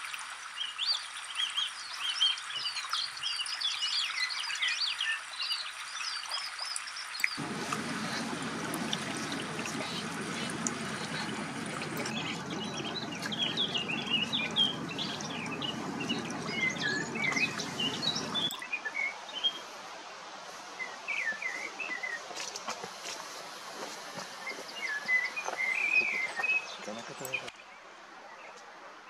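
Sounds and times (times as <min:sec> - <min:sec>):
songbirds chirping: 0:00.6 - 0:19.8, 0:20.7 - 0:28.8
steady rushing noise: 0:07.4 - 0:18.5.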